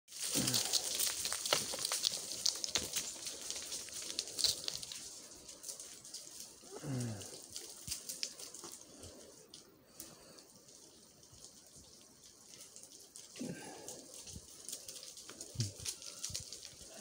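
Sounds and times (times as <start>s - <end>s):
footsteps crunching on gravel: 0.1s - 8.9s
faint clicks of stones: 0.1s - 17.0s.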